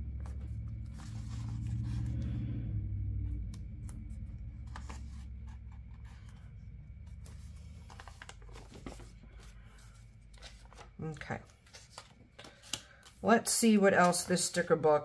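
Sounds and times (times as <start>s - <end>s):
low rumble: 0.0s - 9.1s
paper sticker sheets rustling: 0.1s - 2.4s, 3.8s - 14.8s.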